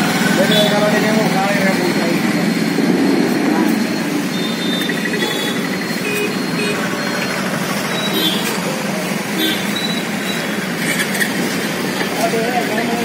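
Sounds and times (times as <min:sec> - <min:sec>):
road traffic hum: 0:00.0 - 0:13.0.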